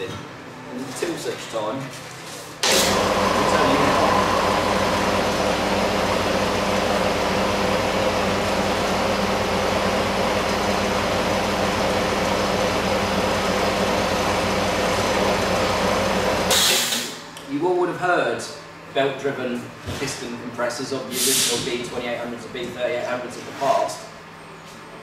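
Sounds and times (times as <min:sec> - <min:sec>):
air compressor running: 0:02.6 - 0:17.2.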